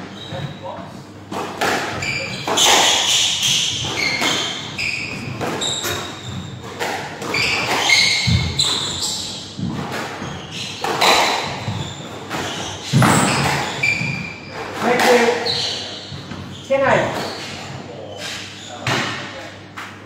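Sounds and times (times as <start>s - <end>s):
shoes squeaking on wooden floor: 1.7s - 19.2s
squash ball cracking off rackets: 10.8s - 13.8s.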